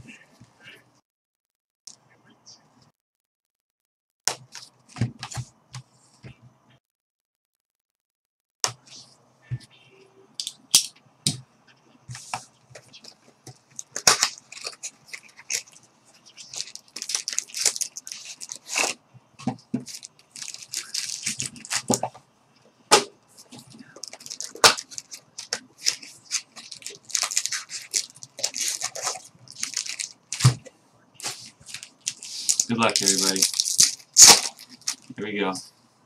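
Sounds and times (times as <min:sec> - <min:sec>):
cardboard and wrappers tearing: 0:13.8 - 0:15.8, 0:16.4 - 0:19.0, 0:19.8 - 0:22.0, 0:24.0 - 0:30.6, 0:31.2 - 0:35.1.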